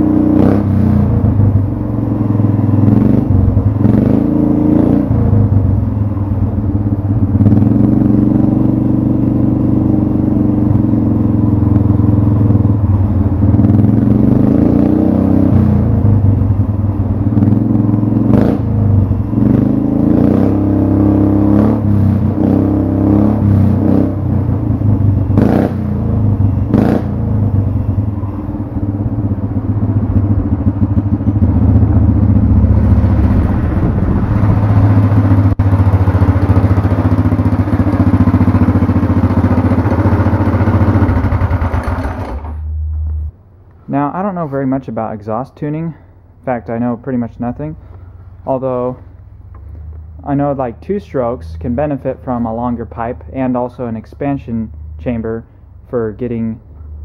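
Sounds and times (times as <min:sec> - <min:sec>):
go-kart engine running loud: 0:00.0 - 0:42.7.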